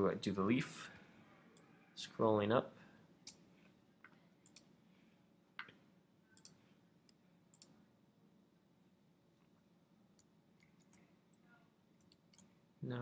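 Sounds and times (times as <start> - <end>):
faint computer mouse clicks: 6.4 - 7.8.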